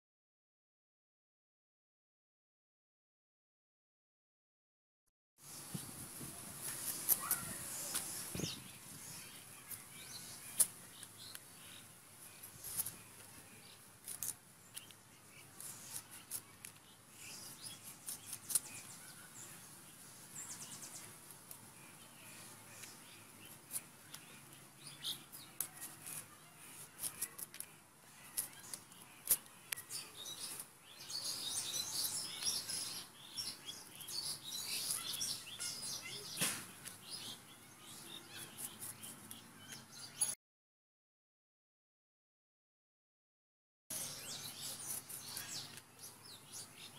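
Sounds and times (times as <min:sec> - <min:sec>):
birds chirping: 0:05.4 - 0:40.4, 0:43.9 - 0:46.9
blade scraping radish skin: 0:14.0 - 0:14.9, 0:17.4 - 0:18.9, 0:25.4 - 0:30.7, 0:38.3 - 0:39.4, 0:44.3 - 0:45.8.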